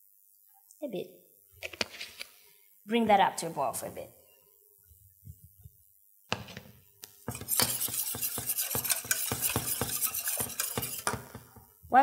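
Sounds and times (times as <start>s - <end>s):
utensil scraping saucepan: 7.3s - 11.6s.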